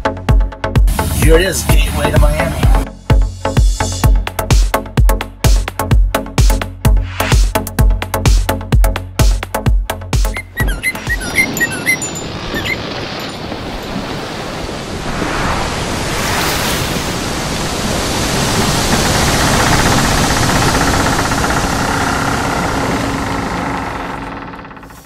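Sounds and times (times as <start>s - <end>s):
loud steady rushing noise: 14.9s - 23.5s.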